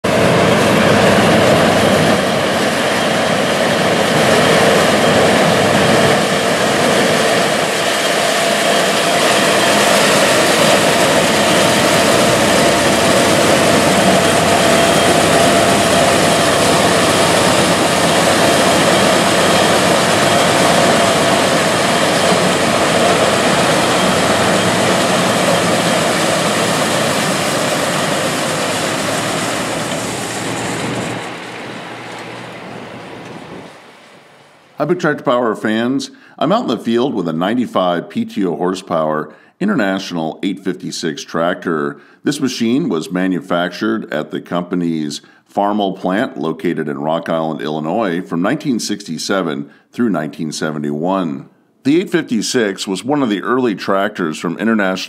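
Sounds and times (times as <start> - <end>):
tractor and corn picker din: 0.0 - 37.2
machine whining tones: 0.1 - 34.9.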